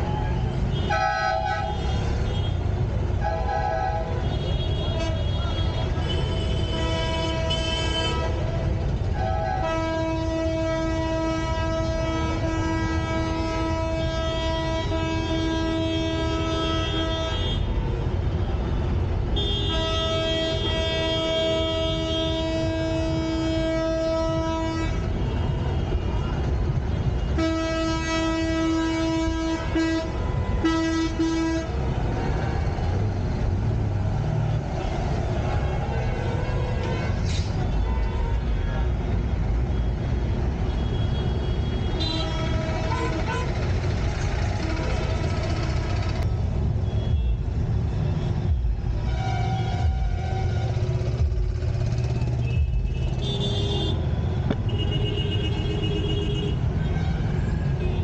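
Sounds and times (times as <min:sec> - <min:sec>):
street traffic rumble: 0:00.0 - 0:58.0
vehicle horn blasts: 0:09.1 - 0:17.7, 0:19.4 - 0:26.1, 0:27.1 - 0:31.9, 0:40.7 - 0:43.5, 0:48.2 - 0:51.3.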